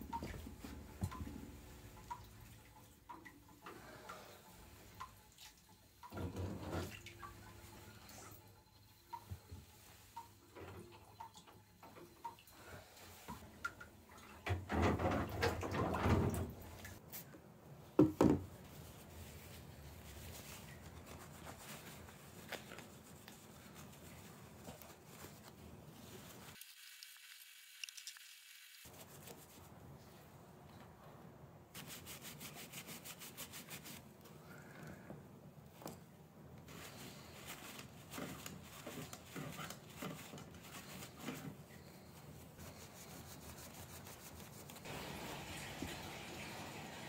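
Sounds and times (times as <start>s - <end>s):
paper towel rubbing: 18.6s - 26.6s, 31.8s - 34.2s, 36.7s - 46.0s.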